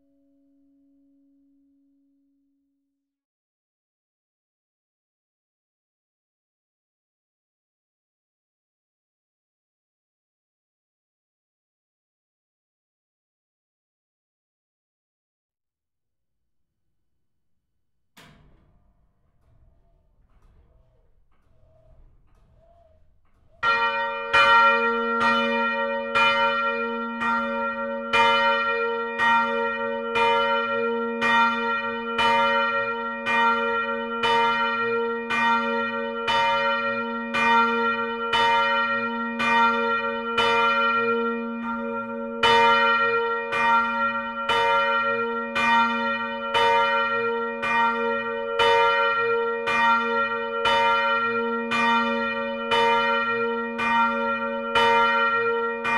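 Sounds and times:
church bell ringing: 18.2 - 55.9.

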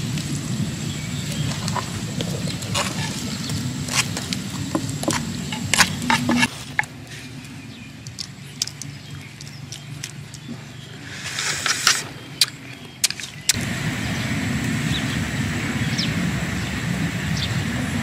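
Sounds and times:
low steady hum: 0.0 - 18.0
spoon scraping wooden mortar: 1.5 - 7.3, 8.1 - 13.5.

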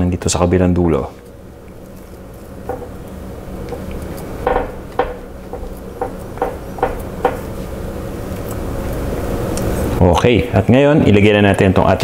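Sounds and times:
steady low hum: 0.0 - 12.0
spatula knocking on ceramic dish: 4.4 - 7.5.

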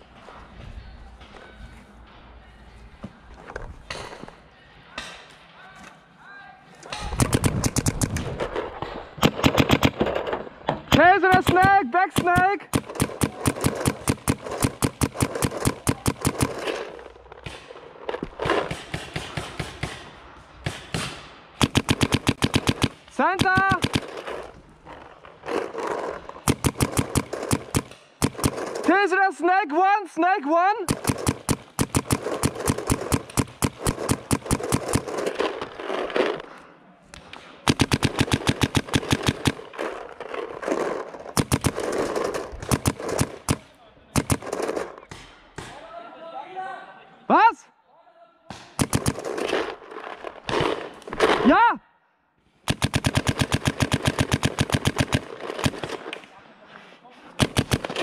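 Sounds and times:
paintball markers firing: 6.8 - 29.1, 30.9 - 45.8, 48.5 - 51.5, 52.6 - 56.4, 57.4 - 58.0.

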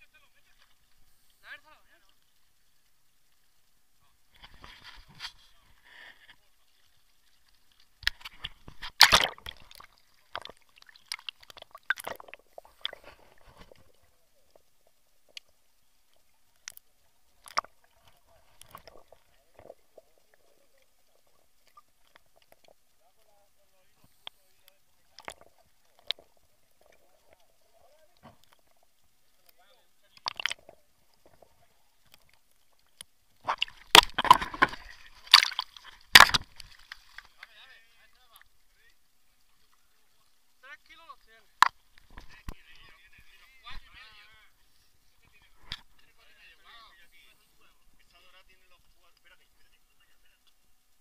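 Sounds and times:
muffled underwater clicks and knocks: 4.3 - 6.5, 7.4 - 23.3, 24.0 - 37.6, 41.5 - 44.1, 45.2 - 46.2
water splashing against camera housing: 8.0 - 14.0, 16.6 - 19.8, 29.4 - 30.7, 33.0 - 37.6, 41.6 - 44.1
loud water splash: 8.8 - 12.2, 33.4 - 37.2.

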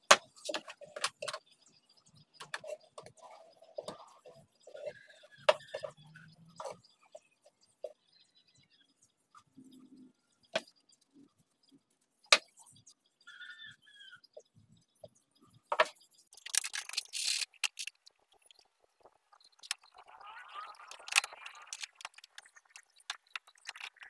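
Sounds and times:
quick scraping and rattling: 16.4 - 18.0.

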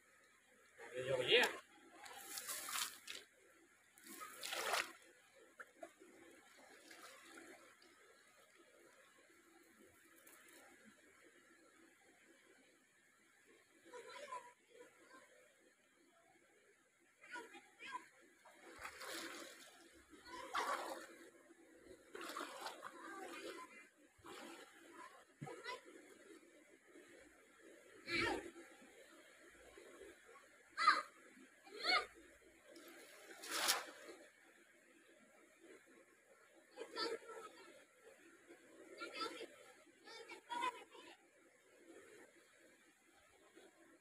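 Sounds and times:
rush of water: 0.7 - 11.1, 17.2 - 21.3, 21.9 - 34.4
water pouring from net: 2.2 - 3.2, 4.0 - 5.0, 33.4 - 34.0.

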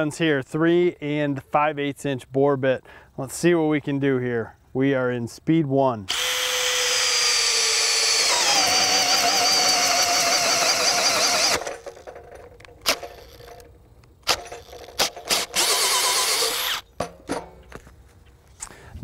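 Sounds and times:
drill motor whining: 6.1 - 16.9.

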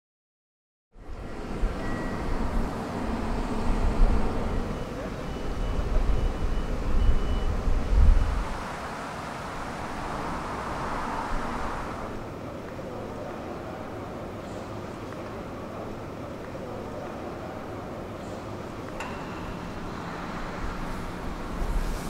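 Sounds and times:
faint high beeping tone: 1.0 - 7.6
low gusting rumble: 5.6 - 12.2.

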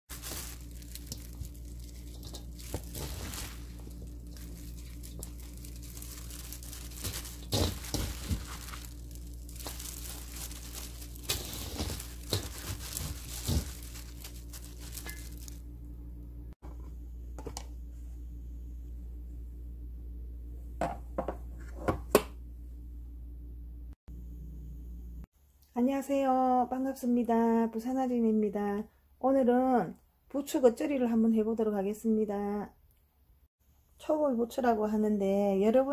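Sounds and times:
plastic glove crinkling: 0.1 - 15.7
wet vegetables rustling: 0.1 - 15.7.

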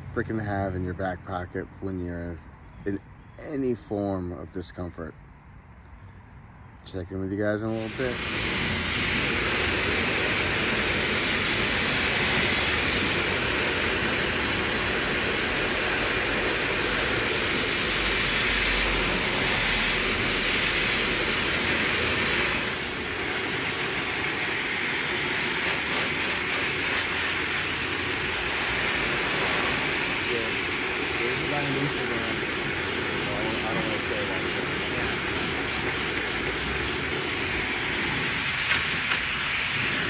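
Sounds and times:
gas jet hissing: 7.5 - 40.0.

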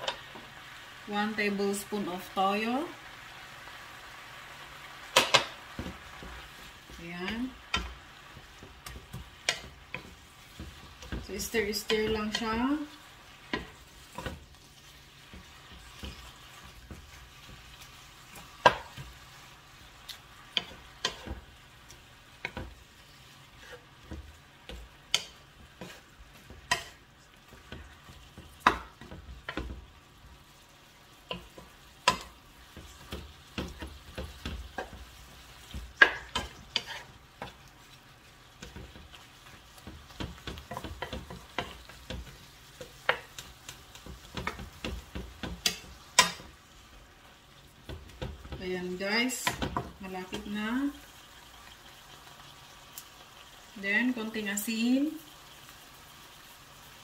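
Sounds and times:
spatula tapping and scraping pan: 0.0 - 0.6, 5.0 - 50.6
soft sizzle: 0.0 - 57.0.

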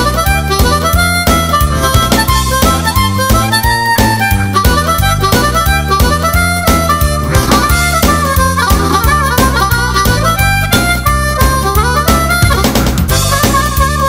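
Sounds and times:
blues harmonica tune: 0.0 - 14.0
steady beat: 0.0 - 14.0.

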